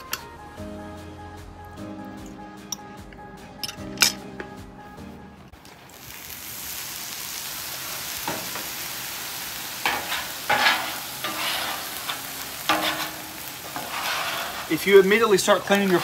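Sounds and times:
griddle sizzling: 0:05.5 - 0:16.0
scraper scraping griddle: 0:09.8 - 0:16.0.

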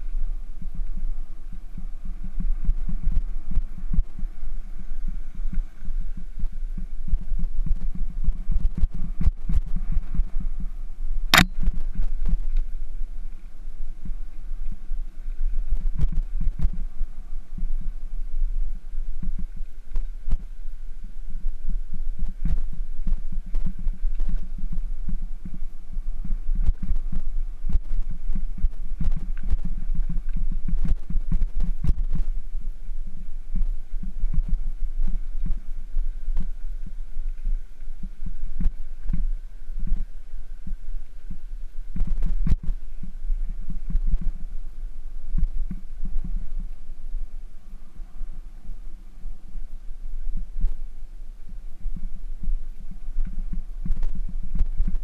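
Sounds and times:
bicycle rumbling over gravel: 0:00.0 - 0:41.5
wind buffeting microphone: 0:00.0 - 0:55.0.

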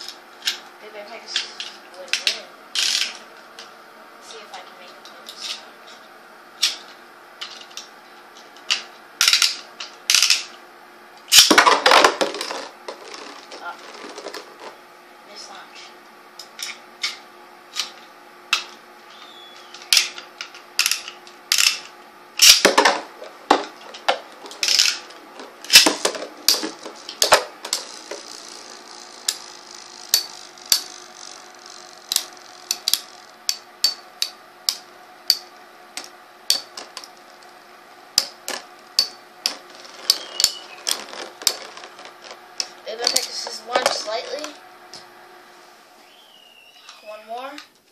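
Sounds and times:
spinning tops clashing: 0:38.2 - 0:42.3.

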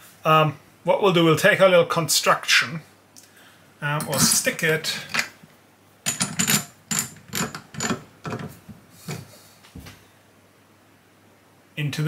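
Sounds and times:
chuck clicking and grinding: 0:06.1 - 0:08.6.

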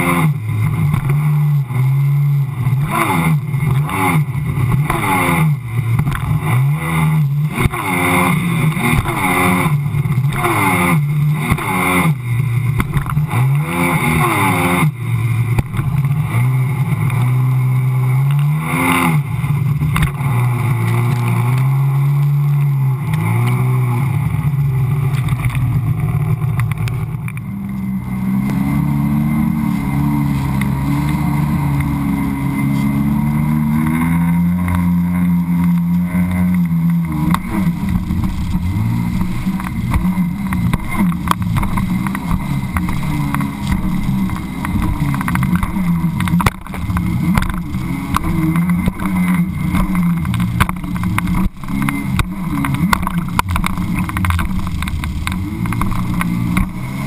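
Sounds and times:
watercraft engine revving: 0:00.0 - 0:57.0
water slapping hull: 0:25.1 - 0:57.0
rushing spray: 0:28.0 - 0:57.0.

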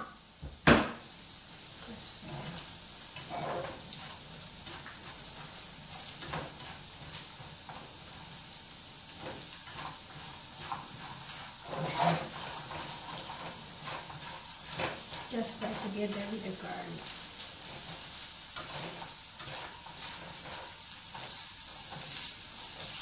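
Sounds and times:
garlic sizzling in a frying pan: 0:00.0 - 0:23.0
utensil scraping and knocking pan: 0:03.2 - 0:05.5, 0:09.2 - 0:16.2, 0:17.6 - 0:23.0.

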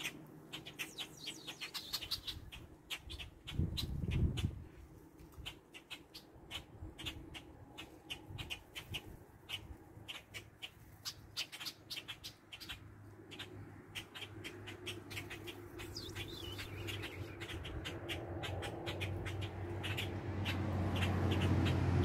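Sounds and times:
sharp clicks and ticks: 0:10.0 - 0:22.0.

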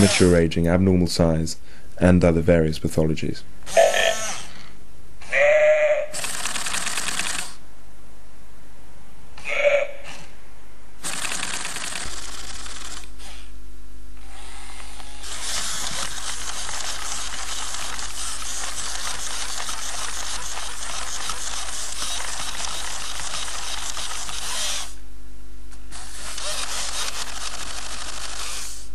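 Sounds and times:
robot dog motors clicking whirr: 0:00.0 - 0:00.4, 0:03.7 - 0:04.5, 0:06.2 - 0:07.6, 0:11.0 - 0:13.4, 0:14.2 - 0:25.0, 0:25.9 - 0:28.9.

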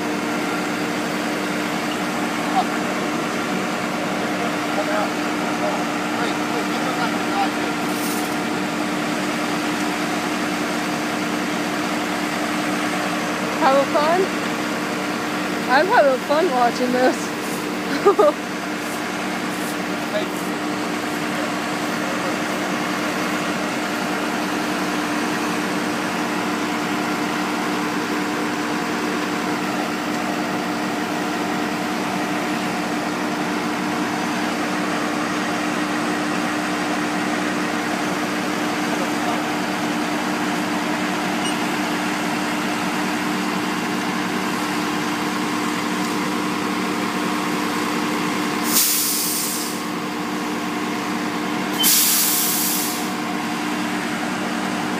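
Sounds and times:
diesel engines droning: 0:00.0 - 0:54.9
loud hiss: 0:48.6 - 0:49.9, 0:51.8 - 0:53.2.

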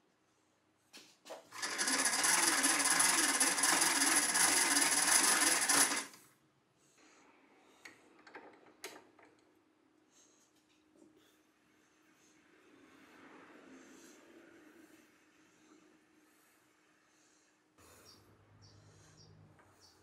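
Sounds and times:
hand crank gear whirr: 0:01.6 - 0:06.2.

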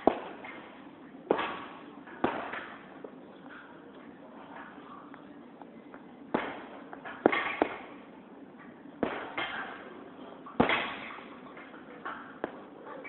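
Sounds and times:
gloved punches on heavy bag: 0:09.0 - 0:09.4.

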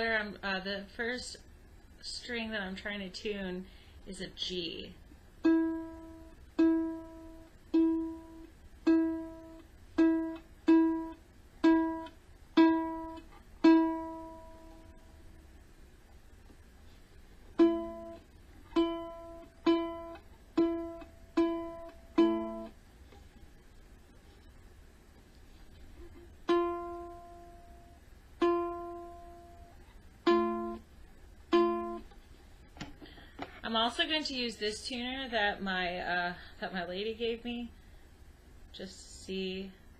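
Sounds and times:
ukulele string plucked: 0:05.4 - 0:15.1, 0:17.6 - 0:22.8, 0:26.0 - 0:30.8, 0:31.5 - 0:32.1.

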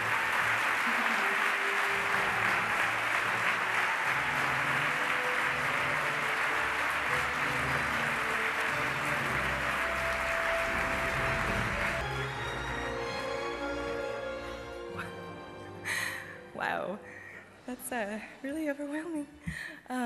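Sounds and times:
audience applauding: 0:00.0 - 0:12.2
background music: 0:00.0 - 0:20.0.

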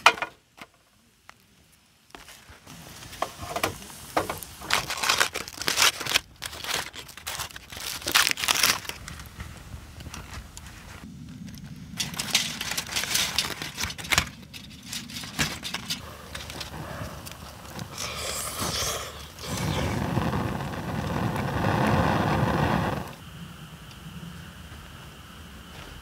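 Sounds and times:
foil crinkling: 0:04.3 - 0:23.1.

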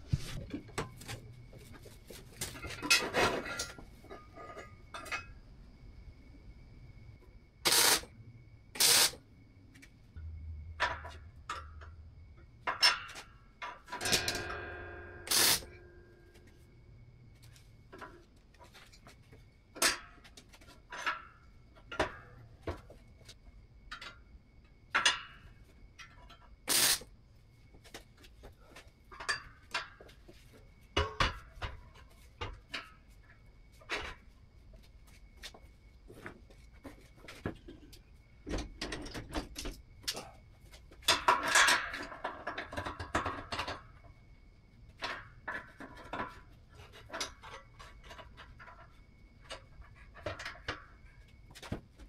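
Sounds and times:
metal clanks and knocks: 0:00.0 - 0:05.4, 0:10.7 - 0:16.4, 0:29.0 - 0:34.3, 0:36.8 - 0:40.2, 0:40.9 - 0:44.2, 0:44.9 - 0:52.0
steel piece ringing: 0:14.0 - 0:16.1.

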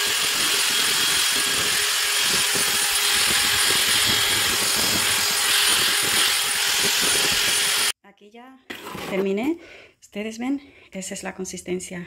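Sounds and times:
cordless drill with paddle mixer: 0:00.0 - 0:08.0.

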